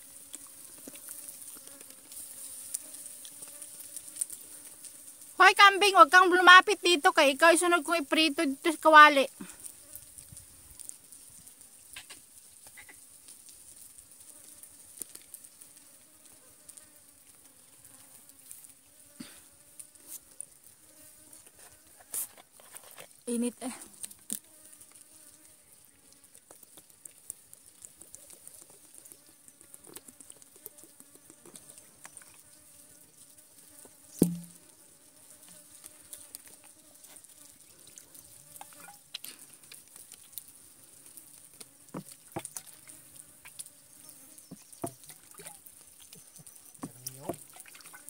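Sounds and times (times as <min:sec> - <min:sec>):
insects droning: 0:00.0 - 0:16.4, 0:27.5 - 0:48.0
faint fly buzz: 0:00.0 - 0:26.5, 0:28.1 - 0:48.0.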